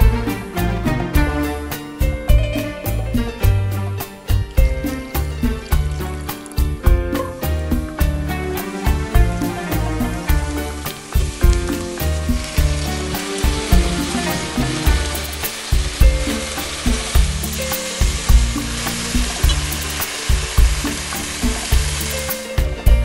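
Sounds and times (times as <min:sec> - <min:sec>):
background music with steady beat: 0:00.0 - 0:23.0
chicken sizzling in oil: 0:04.0 - 0:22.9.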